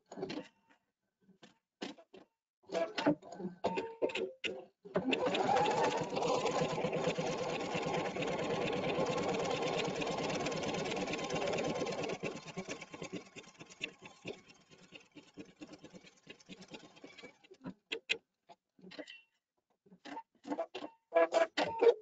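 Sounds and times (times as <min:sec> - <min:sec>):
embroidery machine stitching: 0:05.0 - 0:17.6.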